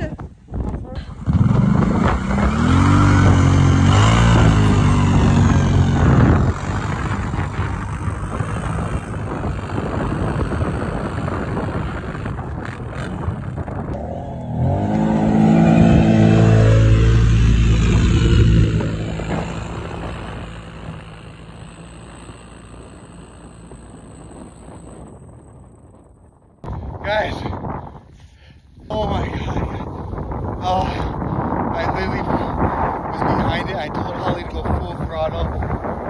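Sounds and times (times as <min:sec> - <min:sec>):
atv engine revving in snow: 0:01.0 - 0:25.5.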